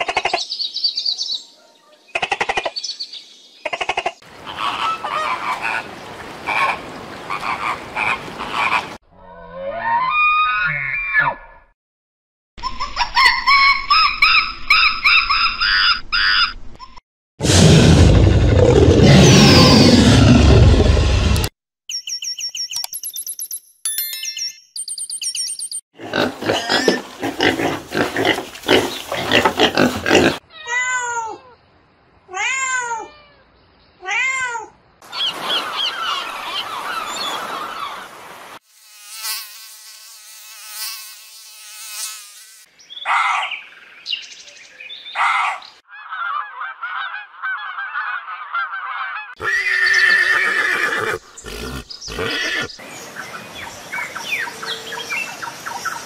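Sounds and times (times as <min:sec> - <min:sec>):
animal sounds: 0:03.7 - 0:05.9, 0:26.0 - 0:30.7, 0:45.1 - 0:52.8
rising then falling animal calls: 0:17.5 - 0:21.4.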